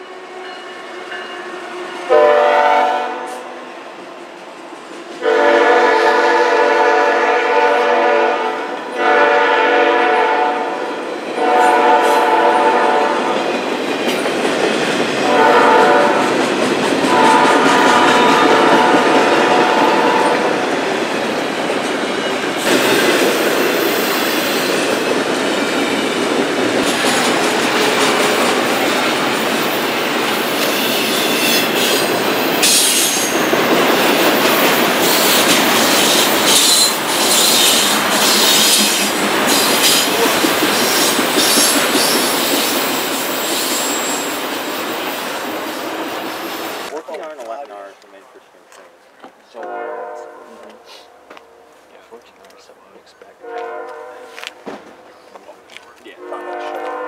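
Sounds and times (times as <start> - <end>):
train horn blasts: 0.0 - 3.6, 5.2 - 13.5, 15.2 - 16.4, 17.1 - 20.6, 49.6 - 51.3, 53.4 - 54.6, 56.1 - 57.0
wheel squeal: 30.6 - 32.0.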